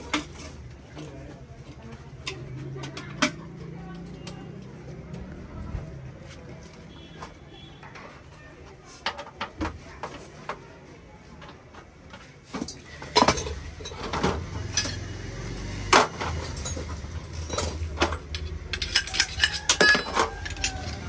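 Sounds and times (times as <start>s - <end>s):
metal clinks and knocks: 12.5s - 21.0s.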